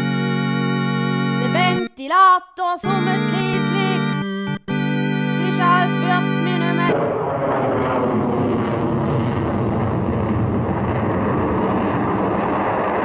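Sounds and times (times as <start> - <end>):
jet engines roaring: 7.0 - 13.0.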